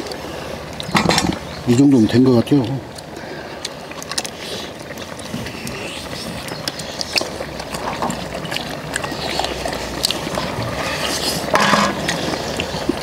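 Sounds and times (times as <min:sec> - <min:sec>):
chewing and sucking meat: 0:02.6 - 0:13.0.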